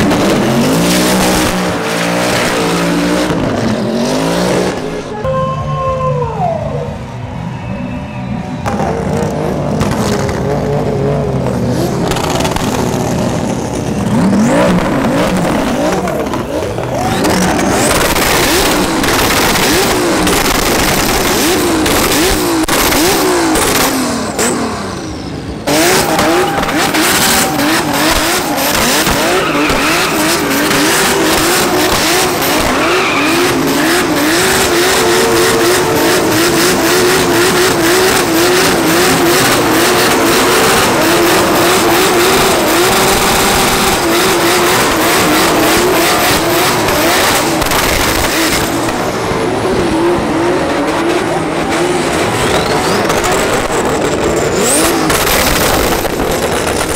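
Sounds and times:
car engine revving hard: 0.0 - 5.1, 8.6 - 56.9
tyres squealing: 25.0 - 47.6.

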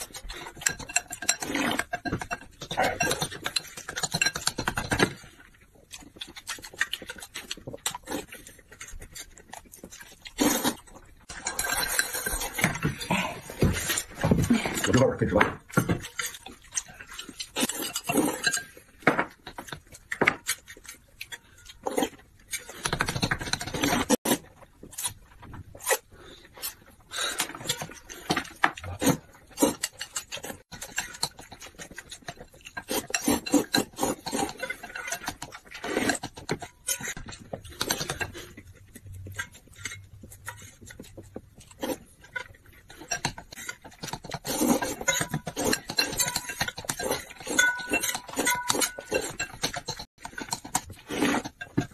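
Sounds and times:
chopsticks clinking on bowls: 0.0 - 5.0, 11.3 - 14.0, 39.3 - 51.9
noodles slurped and chewed: 0.0 - 51.9.

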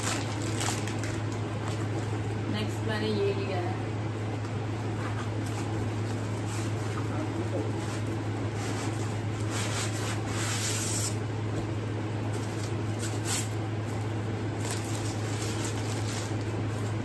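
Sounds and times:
foam and plastic wrap crinkling: 0.0 - 2.2, 12.3 - 17.0
steady low hum: 0.0 - 17.0.

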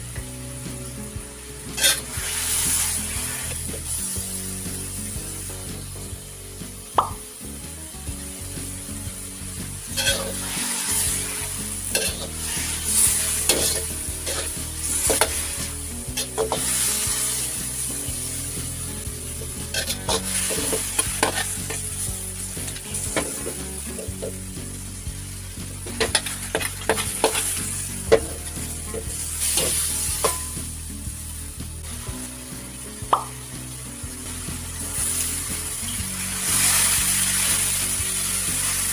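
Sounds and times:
meat sizzling in a wok: 0.0 - 38.9
metal spatula scraping a pan: 1.7 - 4.0, 9.9 - 18.6, 19.3 - 22.0.

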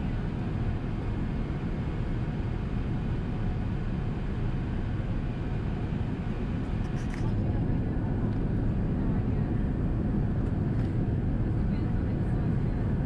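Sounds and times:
airliner cabin noise: 4.8 - 13.0.

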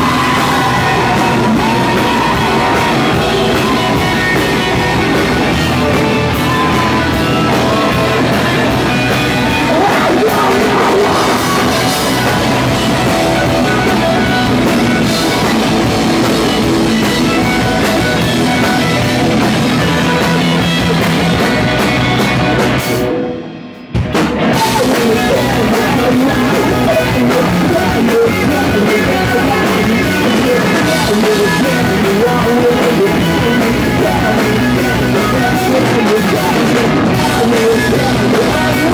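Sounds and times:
shouted singing: 0.0 - 21.4
drum kit: 0.0 - 38.9
electric guitars: 0.0 - 38.9.

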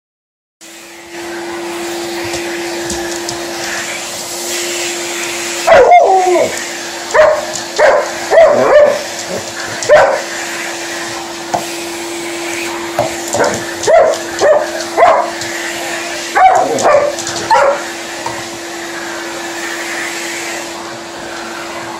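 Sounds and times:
vacuum cleaner humming: 0.6 - 21.9
dog barking: 5.7 - 6.5, 7.1 - 10.3, 13.3 - 15.4, 16.3 - 17.9.

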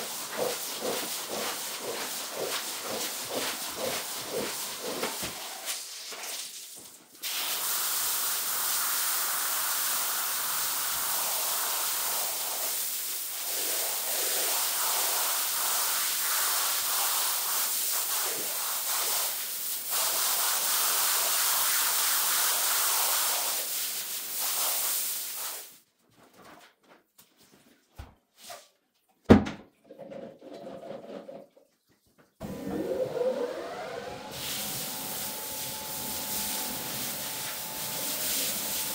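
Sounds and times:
water spraying onto a rug: 0.0 - 25.8, 34.3 - 38.9.

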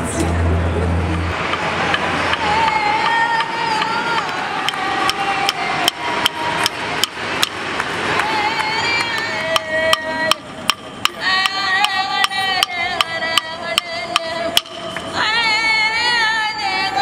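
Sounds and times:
wooden clapsticks beat: 1.5 - 15.2
women singing long notes: 1.5 - 17.0.

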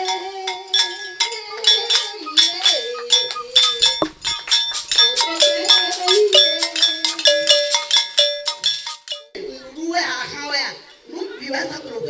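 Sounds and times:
iron bells struck with stick: 0.0 - 9.3
shaker rattling: 0.0 - 9.3.

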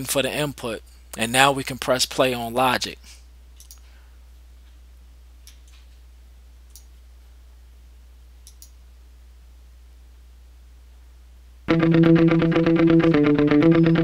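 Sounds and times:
computer mouse clicks: 6.7 - 6.9, 8.4 - 8.8.

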